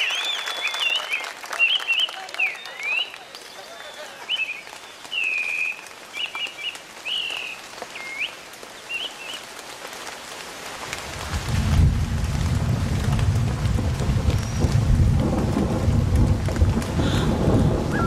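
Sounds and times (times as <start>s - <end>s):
whistled bird calls: 0.0s - 9.4s
rain hiss: 0.0s - 18.0s
deep thunder rumble: 11.0s - 18.0s.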